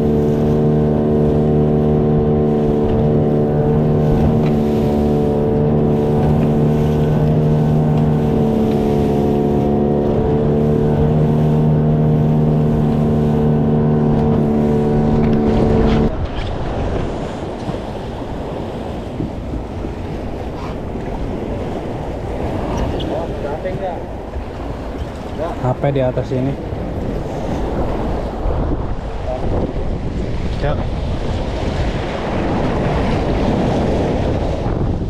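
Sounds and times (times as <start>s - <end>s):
water washing: 0.0s - 16.2s
outboard motor droning: 0.0s - 35.0s
wind: 0.0s - 35.0s.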